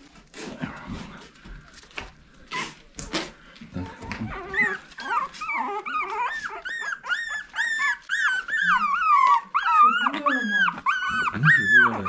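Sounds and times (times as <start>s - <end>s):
puppies whimpering: 2.5s - 12.0s.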